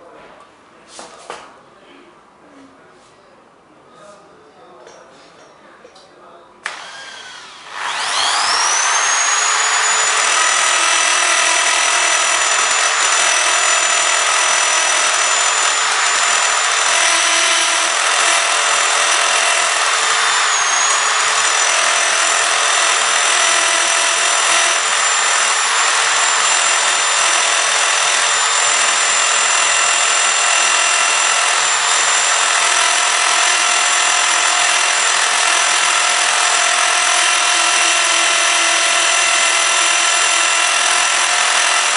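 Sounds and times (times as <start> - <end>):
power drill bit grinding glass: 6.7 - 41.9.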